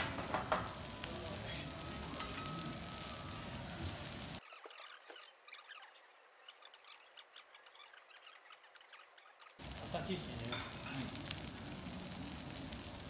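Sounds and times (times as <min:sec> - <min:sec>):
fat sizzling on a griddle: 0:00.0 - 0:04.4, 0:09.6 - 0:13.0
spatula rubbing on griddle: 0:00.0 - 0:05.2.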